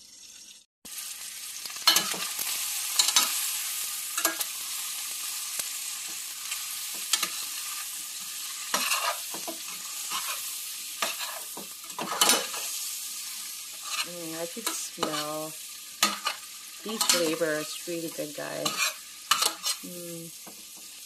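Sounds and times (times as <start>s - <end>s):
food sizzling in hot oil: 0.0s - 21.0s
metal spoon scraping pan: 6.4s - 19.9s.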